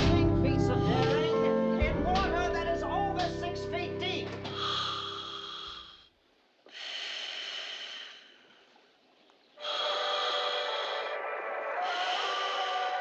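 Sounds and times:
loud rushing breaths: 4.5s - 6.1s, 6.7s - 8.8s, 9.6s - 13.0s.

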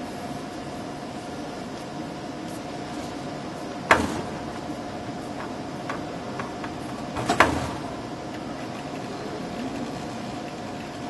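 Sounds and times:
steady machine hum: 0.0s - 11.0s.

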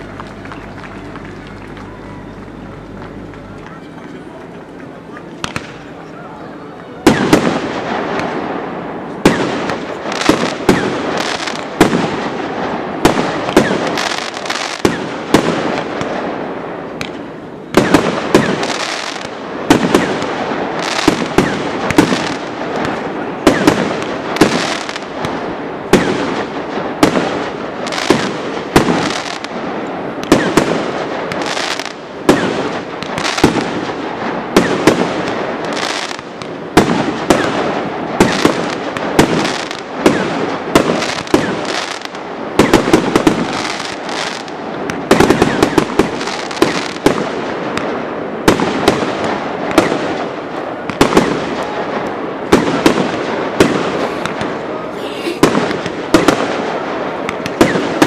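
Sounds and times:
fireworks launching and bursting: 0.0s - 3.8s, 4.4s - 58.0s
crackling noise: 0.0s - 58.0s.

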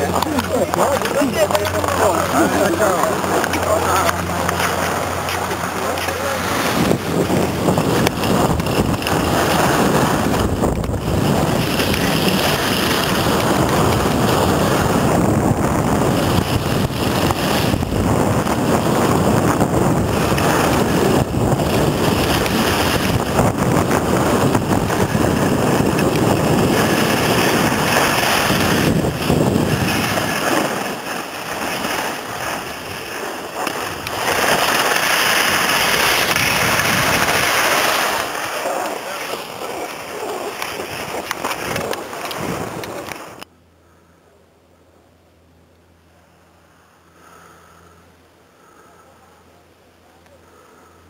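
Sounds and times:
skis scraping on hard snow: 0.0s - 43.4s
wind rushing over microphone: 0.0s - 43.5s.

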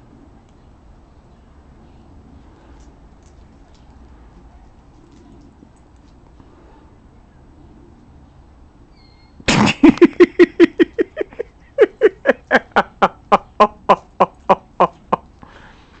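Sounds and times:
person laughing: 9.5s - 15.3s.

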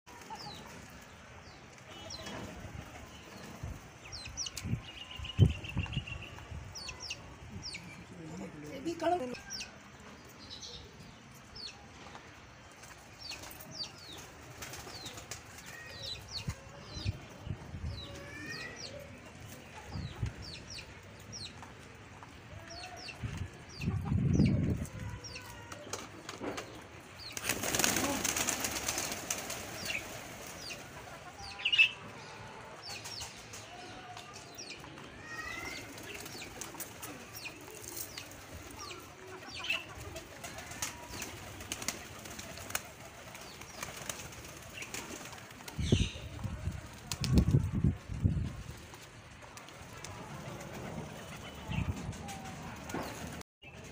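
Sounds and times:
pigeons flapping wings: 13.4s - 16.0s, 25.7s - 31.1s, 35.7s - 38.8s, 39.9s - 53.4s
birds chirping: 48.2s - 53.9s.

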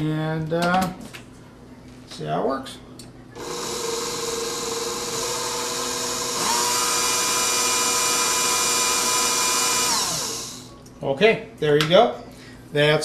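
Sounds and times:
stand mixer motor whine: 3.4s - 10.7s.

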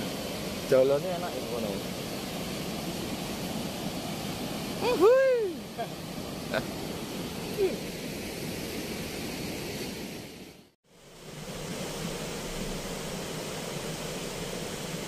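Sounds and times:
river water rushing through sluice gates: 0.0s - 8.8s.

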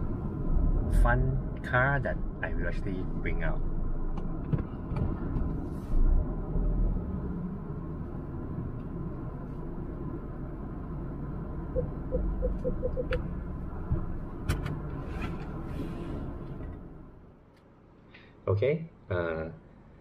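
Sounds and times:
car cabin rumble: 7.6s - 17.1s
parking sensor beeps: 11.7s - 13.2s.

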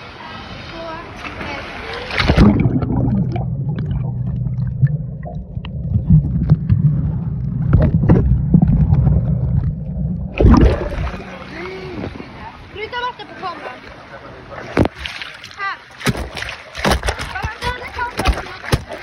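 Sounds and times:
open-air pool sound: 0.0s - 19.0s
water splash: 1.2s - 12.1s, 14.6s - 19.0s
underwater clicks: 2.2s - 11.0s, 16.0s - 19.0s
muffled underwater rumble: 2.2s - 12.6s.

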